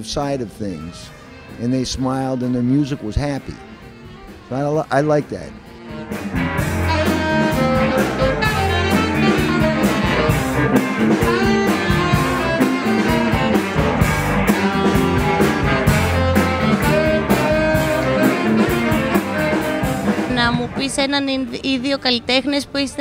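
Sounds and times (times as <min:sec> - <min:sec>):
blues band music: 0:00.0 - 0:23.0
saxophone: 0:02.9 - 0:21.0.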